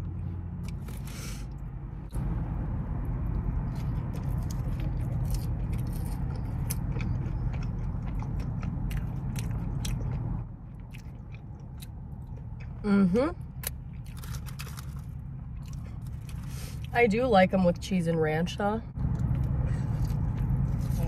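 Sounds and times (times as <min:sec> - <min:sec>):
low rumble: 0:00.0 - 0:21.0
chewing with wet mouth clicks: 0:03.3 - 0:12.8, 0:15.5 - 0:16.9, 0:19.0 - 0:21.0.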